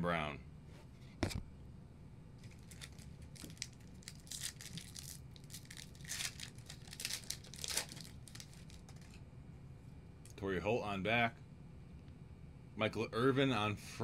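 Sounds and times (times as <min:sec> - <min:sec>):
foil wrapper tearing and crinkling: 0:02.4 - 0:09.2.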